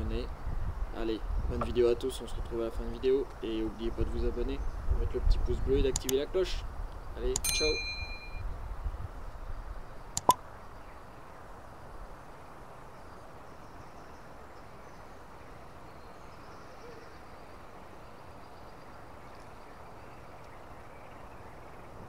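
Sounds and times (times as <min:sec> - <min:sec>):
faint high-pitched chirping: 0:07.0 - 0:08.6.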